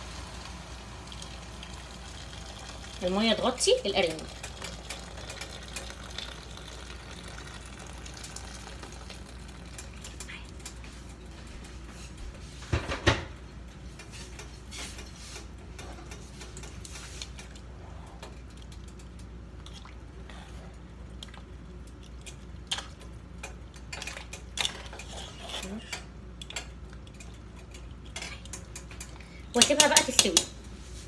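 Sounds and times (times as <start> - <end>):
pot and utensils clattering: 22.2 - 30.6.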